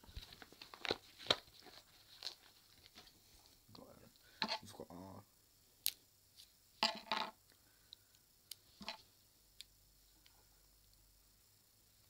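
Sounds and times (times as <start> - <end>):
small objects clicking and knocking: 6.8 - 7.6, 8.5 - 9.7.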